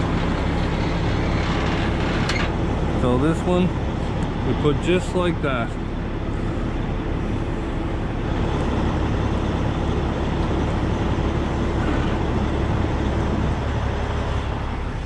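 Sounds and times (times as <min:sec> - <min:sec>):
vehicle engine rumbling: 0:00.0 - 0:15.0.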